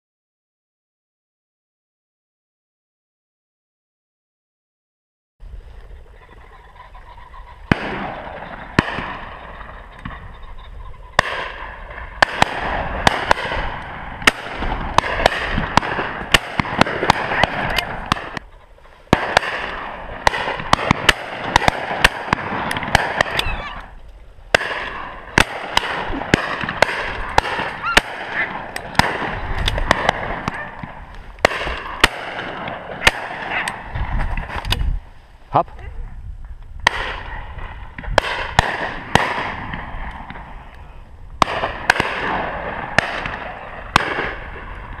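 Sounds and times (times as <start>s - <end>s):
shotgun shots: 7.7s - 10.3s, 11.2s - 18.4s, 19.1s - 23.7s, 24.5s - 34.6s, 36.8s - 40.6s, 41.4s - 45.0s.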